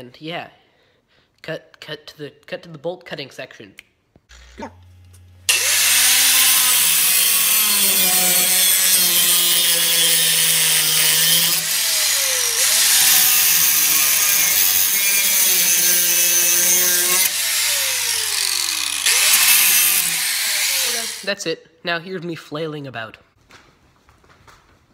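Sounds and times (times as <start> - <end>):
angle grinder cutting metal: 5.5 - 21.3.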